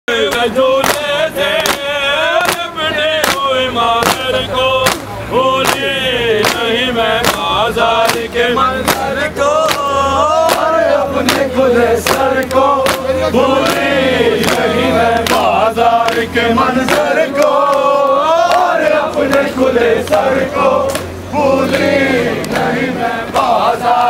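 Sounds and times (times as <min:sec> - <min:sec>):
men chanting: 0:00.1 - 0:24.0
hands slapping chests: 0:00.3 - 0:09.1, 0:09.7 - 0:19.5.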